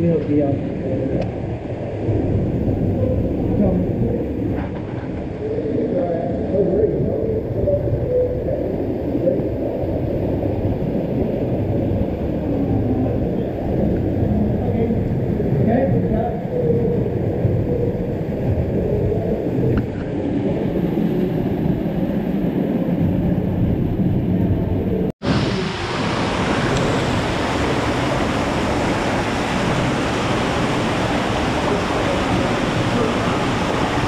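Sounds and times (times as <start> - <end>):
small waterfall rushing: 25.2 - 34.0.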